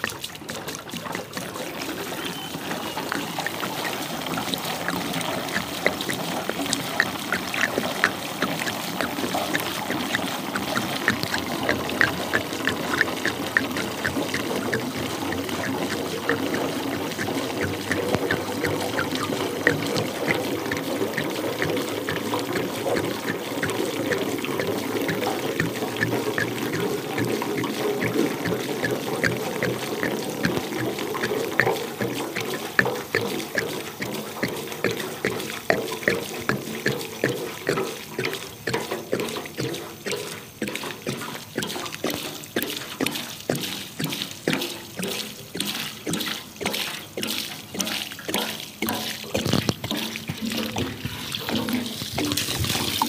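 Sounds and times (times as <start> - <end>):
water splashing onto grass: 0.0 - 53.0.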